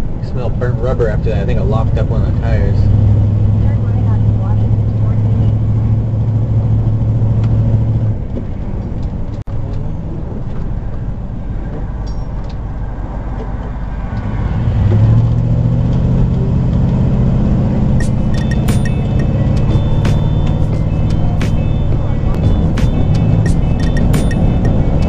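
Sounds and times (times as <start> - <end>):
motorhome engine drone: 0.0 - 25.0
road noise: 0.0 - 25.0.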